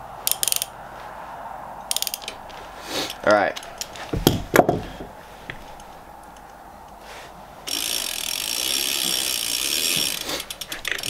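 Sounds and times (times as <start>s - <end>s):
bike chain and sprocket rattling: 0.2s - 0.8s, 1.8s - 6.4s, 7.6s - 11.0s
sharp metallic clicks: 0.3s - 0.8s, 1.8s - 2.5s.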